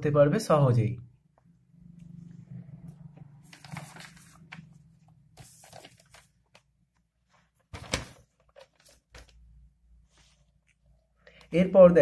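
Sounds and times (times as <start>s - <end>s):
paper rustling: 3.4s - 10.8s.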